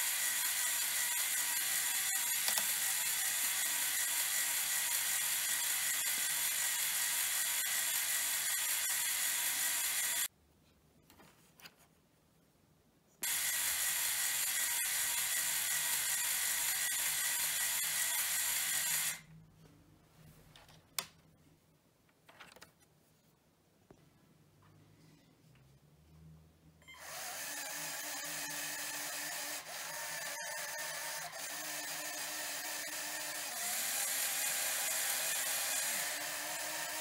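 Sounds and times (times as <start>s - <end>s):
plastic gears whirring: 0.0s - 10.3s, 26.9s - 37.0s.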